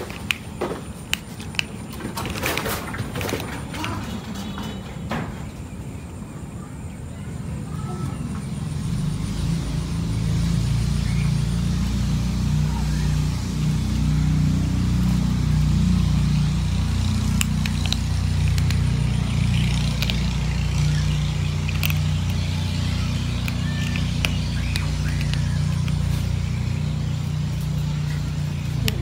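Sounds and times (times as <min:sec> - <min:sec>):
cat crunching dry kibble: 0:00.0 - 0:04.2, 0:14.8 - 0:29.0.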